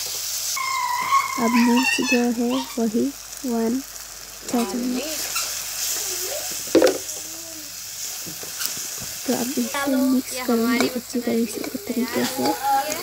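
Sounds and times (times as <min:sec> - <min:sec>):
food sizzling in hot oil: 0:00.0 - 0:13.0
spatula stirring in pan: 0:08.0 - 0:13.0.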